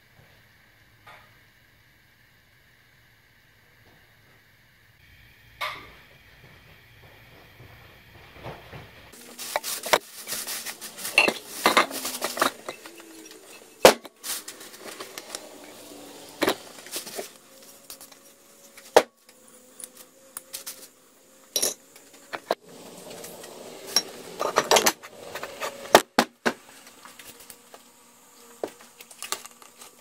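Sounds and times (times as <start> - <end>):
plastic bag rustling: 9.1 - 18.2.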